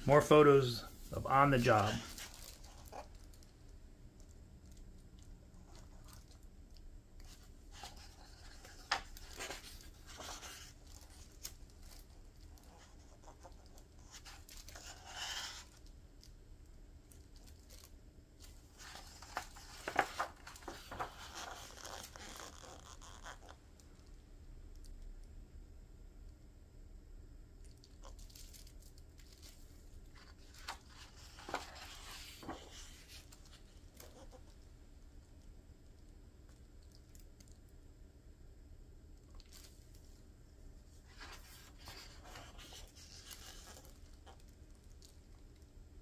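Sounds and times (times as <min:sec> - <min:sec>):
book pages rustling: 0:00.1 - 0:03.5, 0:07.2 - 0:15.9, 0:17.2 - 0:23.6, 0:28.1 - 0:34.6, 0:41.0 - 0:45.1.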